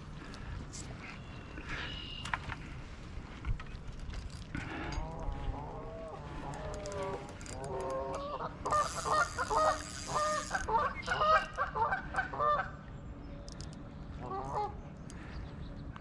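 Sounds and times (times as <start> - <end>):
geese honking: 8.3 - 12.8.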